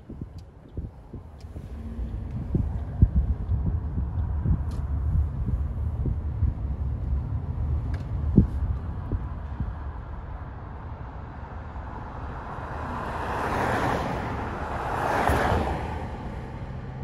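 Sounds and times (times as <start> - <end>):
steady low rumble: 0.0 - 12.7
tyre and road noise: 0.0 - 17.0
car passing by: 11.7 - 17.0.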